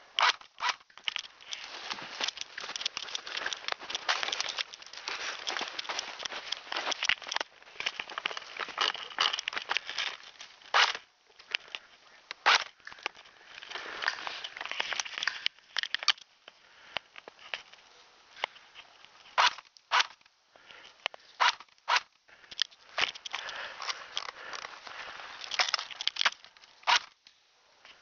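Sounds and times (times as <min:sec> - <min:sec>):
handheld camera handling noise: 0:00.2 - 0:16.3, 0:19.2 - 0:20.3, 0:21.0 - 0:24.7, 0:25.4 - 0:27.2
clothing rustling: 0:01.0 - 0:15.4
footsteps crunching in snow: 0:01.4 - 0:10.9.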